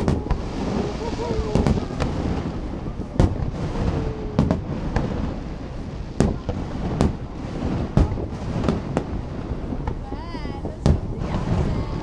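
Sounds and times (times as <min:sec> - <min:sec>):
fireworks bursting: 0:00.0 - 0:12.0.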